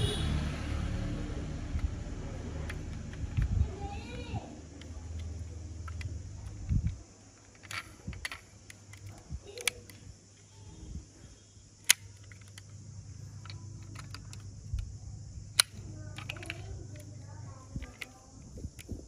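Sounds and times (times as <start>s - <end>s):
toy car doors snapping: 4.8s - 10.0s, 11.8s - 12.7s, 13.4s - 14.4s, 15.5s - 17.0s.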